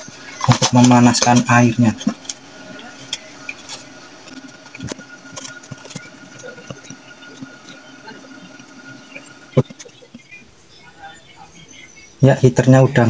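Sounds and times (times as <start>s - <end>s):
water boiling with pops and ticks: 0.0s - 10.4s.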